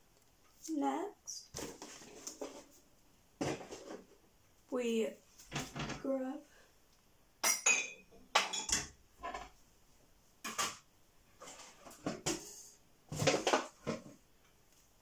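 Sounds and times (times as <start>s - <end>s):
dishes and utensils clattering: 7.4s - 9.6s, 11.4s - 14.1s.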